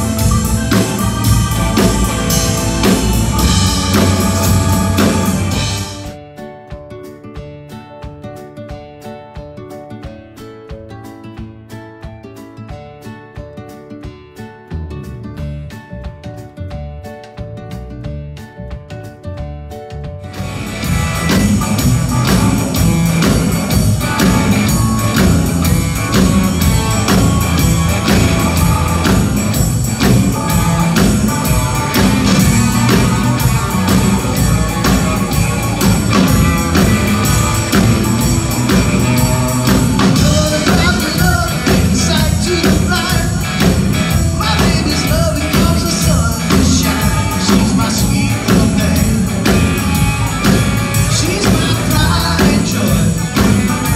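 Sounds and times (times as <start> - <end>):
electric bass: 0.0 - 6.2, 14.6 - 53.9
drum kit: 0.0 - 53.9
electric guitar: 0.0 - 53.9
keyboard: 0.0 - 53.9
man singing: 40.0 - 49.8, 51.0 - 53.9.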